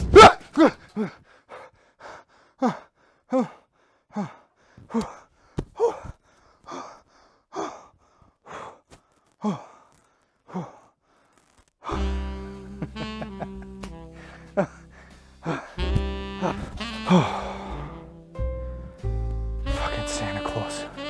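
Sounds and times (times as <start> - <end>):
man gasping and whimpering: 0.3 - 11.3, 13.2 - 18.2.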